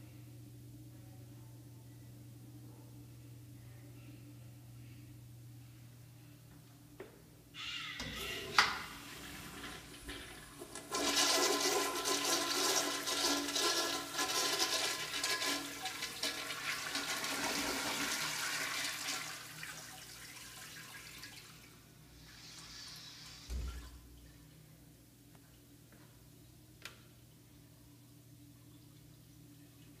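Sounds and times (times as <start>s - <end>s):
toilet flushing: 8.0s - 24.1s.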